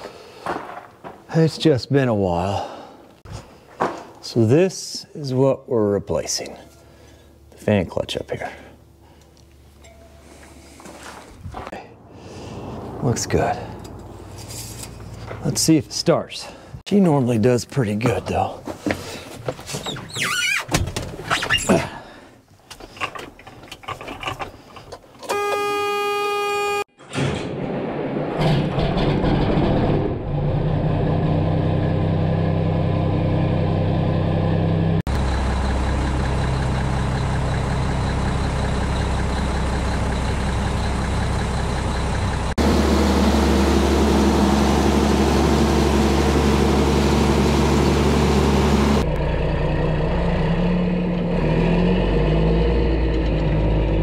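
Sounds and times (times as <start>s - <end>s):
diesel engine cranking and idling: 11.6s - 15.8s, 28.4s - 54.0s
short horn-like tone: 25.3s - 27.0s.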